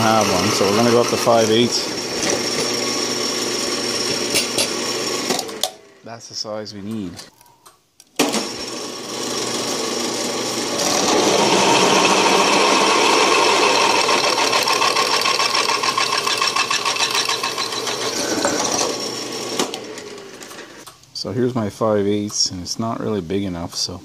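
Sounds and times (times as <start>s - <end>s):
drill press cutting steel: 0.0s - 5.8s, 8.2s - 20.8s.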